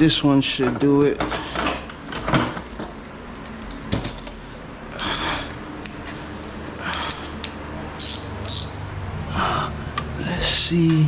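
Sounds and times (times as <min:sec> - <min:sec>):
metal tools clinking in drawer: 0:08.0 - 0:08.8.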